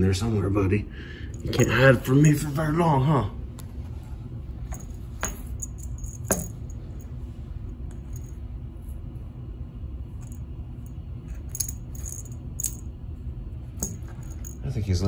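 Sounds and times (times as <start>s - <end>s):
low hum: 0.0s - 15.0s
metal clasp clinking: 4.7s - 6.7s.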